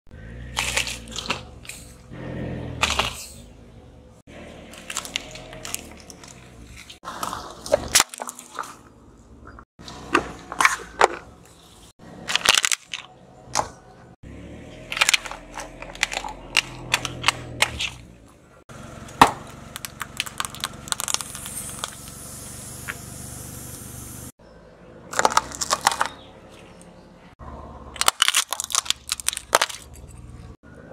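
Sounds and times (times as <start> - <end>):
tyre crushing brittle objects: 0.4 - 2.0, 4.6 - 8.9, 9.8 - 13.8, 14.7 - 18.2, 19.0 - 22.2, 25.1 - 26.7, 28.0 - 30.3.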